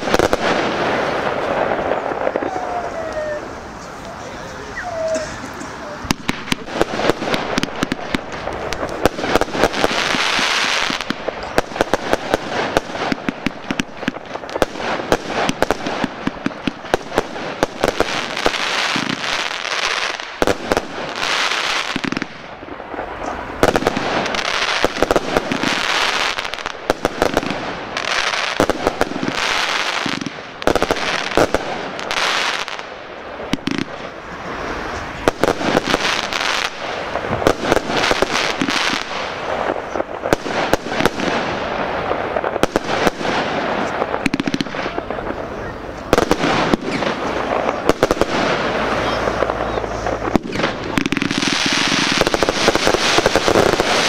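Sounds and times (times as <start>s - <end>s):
fireworks bangs and pops: 0.0s - 54.0s
fireworks hissing crackle: 0.0s - 54.0s.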